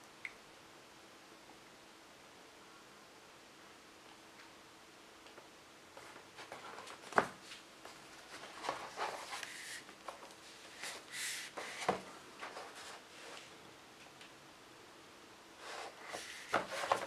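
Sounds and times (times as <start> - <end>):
rustling and sliding: 6.0 - 13.6, 15.6 - 17.0.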